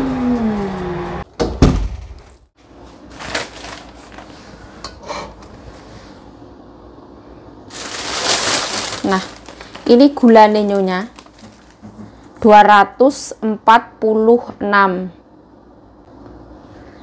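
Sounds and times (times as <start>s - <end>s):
plastic bag rustling: 2.8s - 4.6s, 7.7s - 12.4s.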